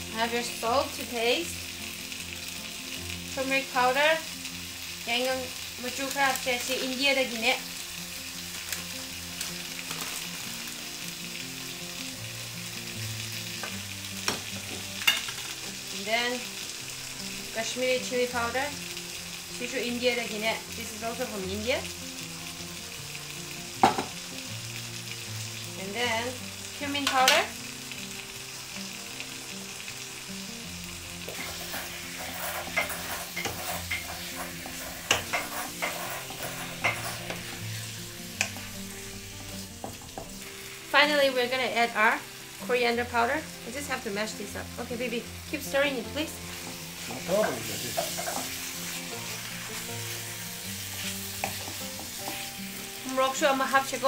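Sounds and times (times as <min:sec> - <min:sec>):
food sizzling in a pan: 0:00.0 - 0:54.0
wooden spatula knocking on pan: 0:23.8 - 0:24.2, 0:39.8 - 0:40.4
spatula knocking and scraping pan: 0:31.3 - 0:37.6, 0:47.4 - 0:48.6, 0:50.9 - 0:52.5.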